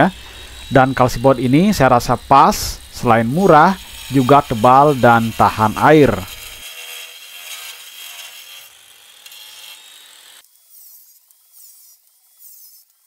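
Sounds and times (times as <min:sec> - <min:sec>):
rhythmic scraping strokes: 0:00.0 - 0:08.7
board being cut: 0:00.0 - 0:13.0.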